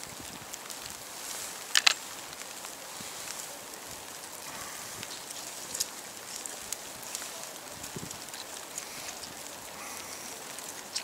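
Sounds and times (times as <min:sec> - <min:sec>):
outdoor hiss: 0:00.0 - 0:11.0.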